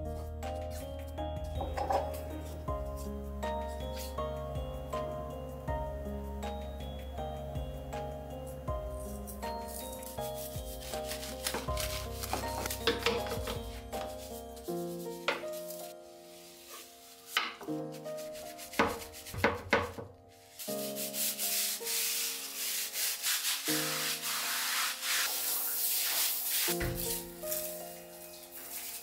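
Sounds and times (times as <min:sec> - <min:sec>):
soft background music: 0:00.0 - 0:29.0
brush scrubbing a sink: 0:09.0 - 0:29.0.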